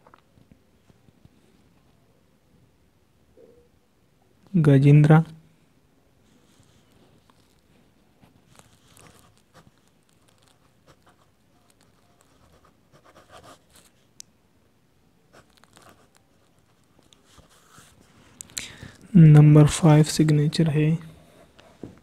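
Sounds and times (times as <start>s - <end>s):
pen scratching on paper: 8.5s - 13.9s, 15.3s - 18.0s.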